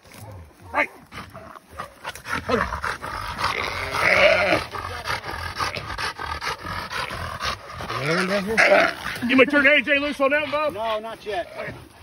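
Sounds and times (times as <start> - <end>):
scuffling in dry grass: 0.0 - 4.7
dog growling: 0.2 - 12.0.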